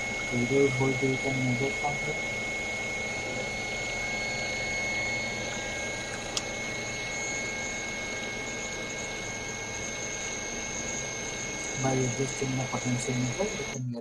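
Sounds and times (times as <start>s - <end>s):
small motor whirring with whine: 0.0s - 13.8s.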